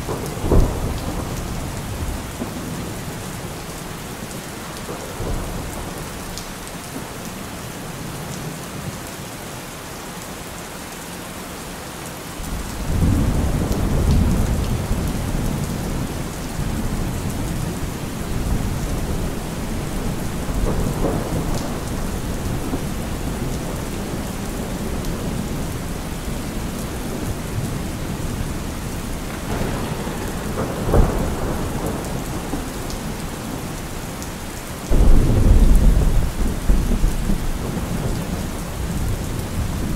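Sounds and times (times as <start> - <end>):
low thunder rumble: 0.0 - 3.1, 12.5 - 34.2, 34.9 - 39.9
steady rain: 0.0 - 39.9
sharp thunder clap: 29.1 - 33.6.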